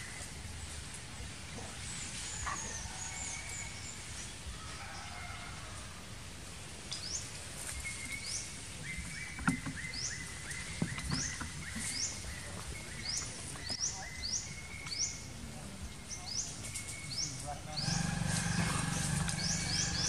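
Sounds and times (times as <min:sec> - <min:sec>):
bird chirping: 0:07.8 - 0:20.0.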